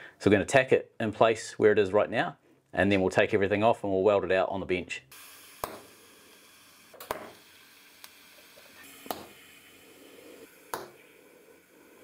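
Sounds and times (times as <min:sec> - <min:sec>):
faint steady hiss: 0:00.0 - 0:12.0
welding arc clicks: 0:05.1 - 0:09.6.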